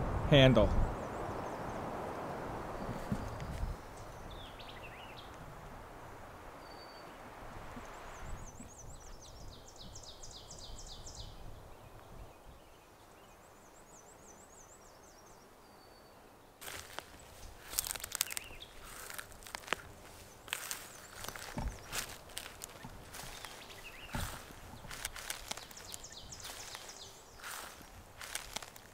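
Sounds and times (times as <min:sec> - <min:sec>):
songbirds singing: 0:00.0 - 0:28.9
rustling crunch: 0:16.6 - 0:28.9.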